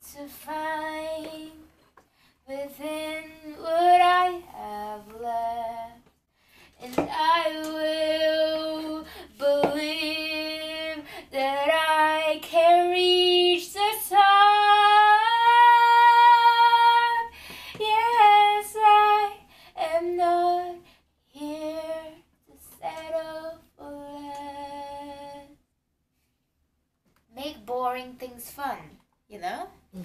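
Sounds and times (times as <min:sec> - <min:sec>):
woman singing unaccompanied: 0:00.0 - 0:01.7, 0:02.5 - 0:06.1, 0:06.8 - 0:25.6
woman breathing: 0:02.0 - 0:02.5, 0:06.3 - 0:06.8, 0:09.0 - 0:09.4, 0:11.0 - 0:11.4, 0:17.3 - 0:17.8, 0:19.4 - 0:19.8.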